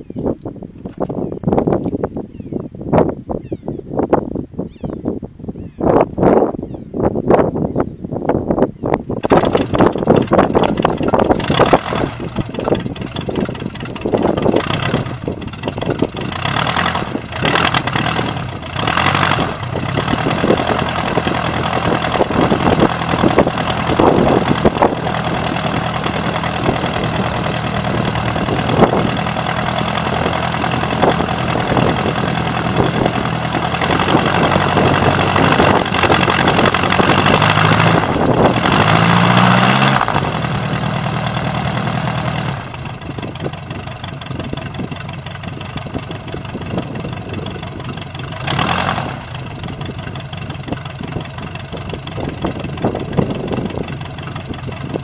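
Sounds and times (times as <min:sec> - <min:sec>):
gyrocopter engine and propeller: 0:09.1 - 0:55.0.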